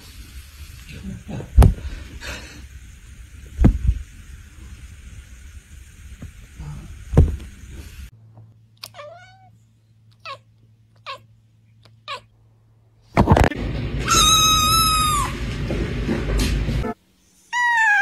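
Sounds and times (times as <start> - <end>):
thump: 7.1 - 7.4
cat meowing: 8.8 - 9.5, 14.0 - 15.4, 17.5 - 18.0.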